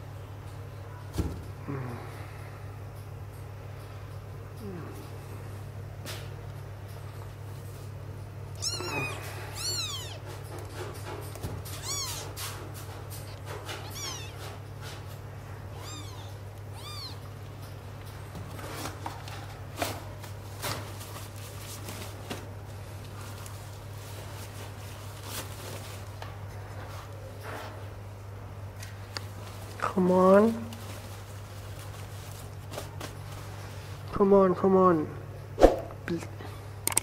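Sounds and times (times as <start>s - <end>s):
steady low hum: 0.0s - 37.0s
kittens mewing: 8.6s - 10.3s, 11.6s - 12.4s, 13.8s - 14.6s, 15.7s - 17.4s.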